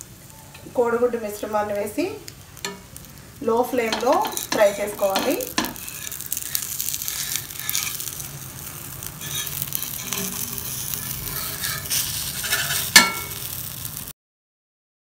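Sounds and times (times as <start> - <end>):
egg sizzling in hot oil: 0.0 - 14.2
whisk scraping glass bowl: 3.9 - 8.2, 9.2 - 13.3
sharp clink: 13.0 - 13.4.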